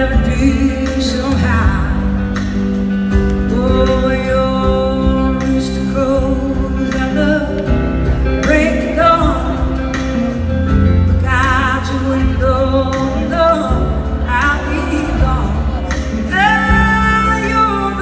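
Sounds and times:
electric guitar: 0.0 - 18.0
live band playing slow song: 0.0 - 18.0
person singing with vibrato: 11.0 - 18.0.

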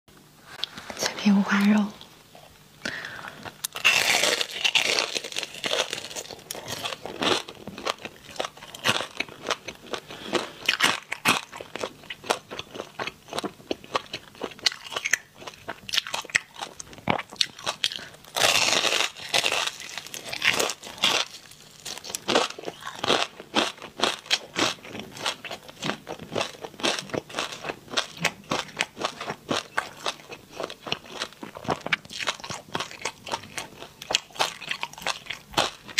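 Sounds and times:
crunchy food being chewed: 3.4 - 35.9.

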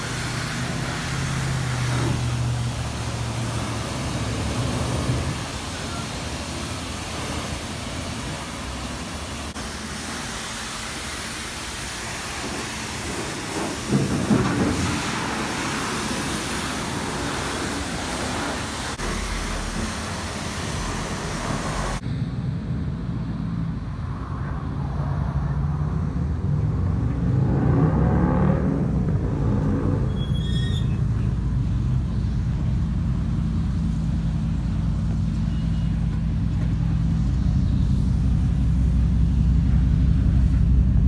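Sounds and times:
pressure washer spraying water: 0.0 - 22.0
truck engine driving slowly: 0.0 - 41.0.

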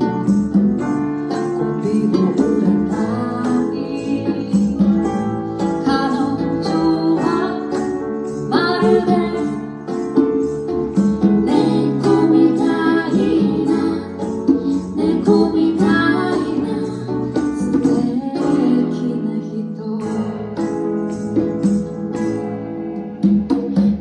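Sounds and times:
live band playing: 0.0 - 24.0
woman singing: 1.3 - 10.0, 11.3 - 20.8.

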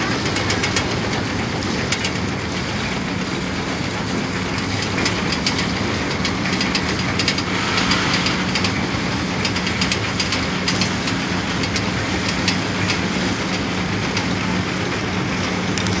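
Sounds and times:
machine humming: 0.0 - 16.0
clattering clicks of mechanism: 9.4 - 13.6.

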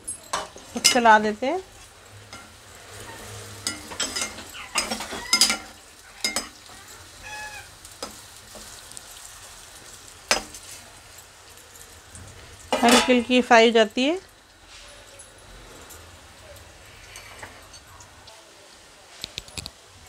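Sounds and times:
food sizzling in hot oil: 0.0 - 20.0
spatula scraping and knocking pan: 1.8 - 6.8.

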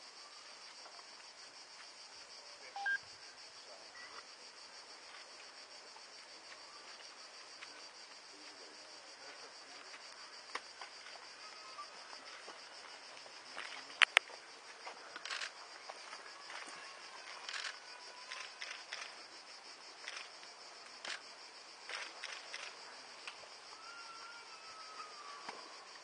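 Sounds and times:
cicadas droning: 0.0 - 26.0
faint ticks: 13.6 - 14.4.

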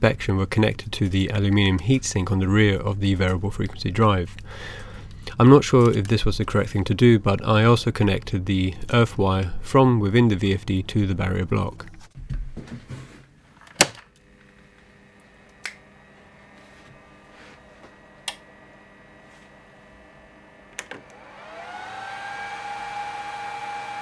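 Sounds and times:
faint control box hum: 0.1 - 12.4, 13.7 - 21.3
motor drive whine rising: 14.2 - 24.0
power switch click: 15.5 - 15.9, 18.2 - 18.5.

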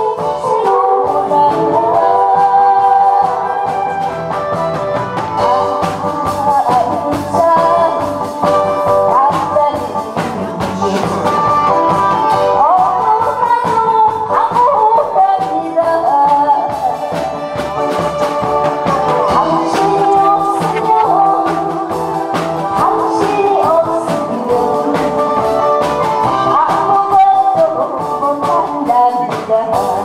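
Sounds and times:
woman singing into microphone: 0.0 - 4.1, 5.7 - 17.8, 18.8 - 30.0
instrumental accompaniment: 14.9 - 30.0
steady drum beat: 17.1 - 26.5.

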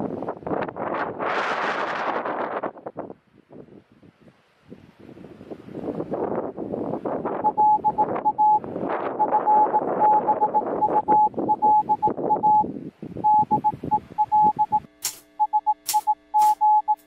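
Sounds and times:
wind rustling foliage: 0.0 - 10.0, 10.6 - 14.2
morse code beeps: 7.4 - 17.0
sharp click: 15.0 - 17.0.

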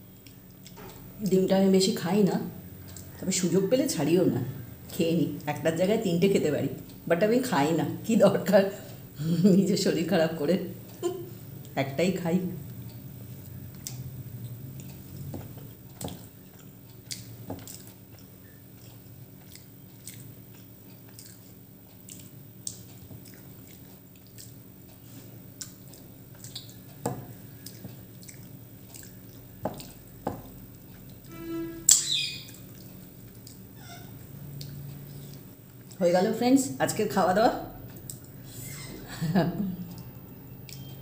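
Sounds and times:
person chewing: 0.0 - 1.2, 2.8 - 3.2, 12.7 - 31.3, 32.5 - 36.0, 39.8 - 40.9.

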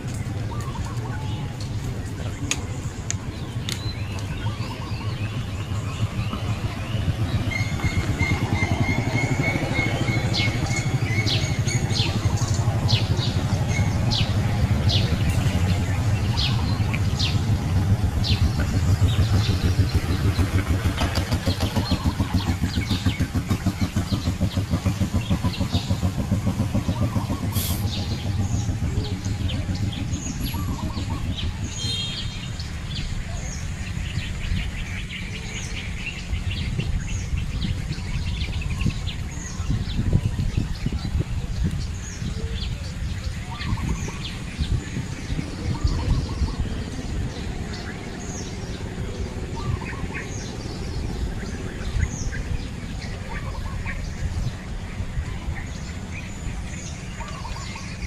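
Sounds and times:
birds chirping: 0.0 - 58.0
low motor rumble: 0.0 - 58.0.

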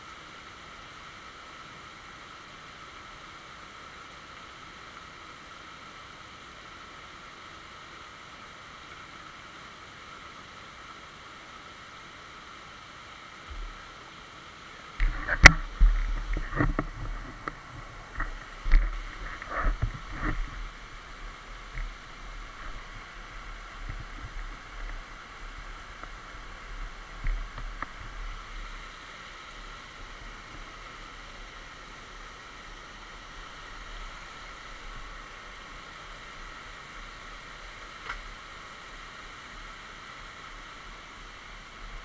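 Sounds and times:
stream rushing over stones: 0.0 - 42.0.

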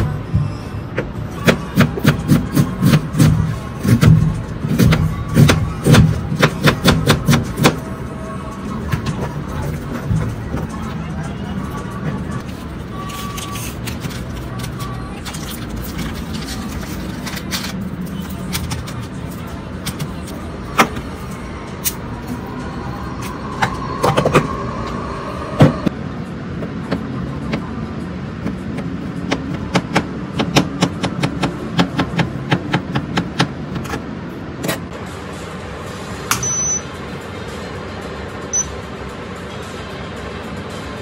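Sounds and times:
steady background noise: 0.0 - 41.0
short high beeps: 36.3 - 36.9, 38.5 - 38.7.

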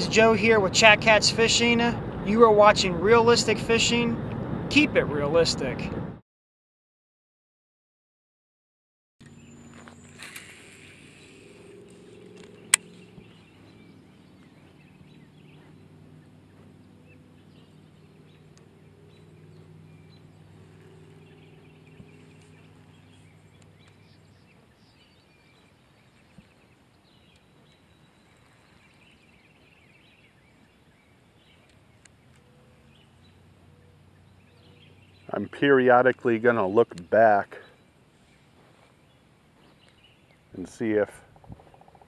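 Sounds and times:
sharp loud click: 9.2 - 11.6, 12.3 - 13.2
low steady hum: 9.2 - 41.3
faint birds calling: 9.2 - 42.0.

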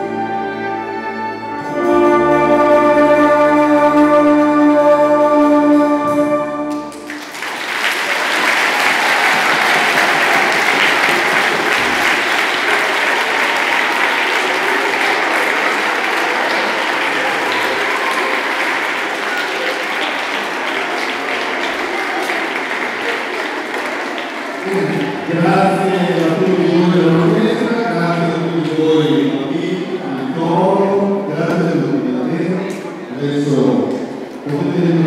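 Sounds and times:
orchestra holding final chord: 0.0 - 7.1
audience applauding: 6.7 - 27.7.

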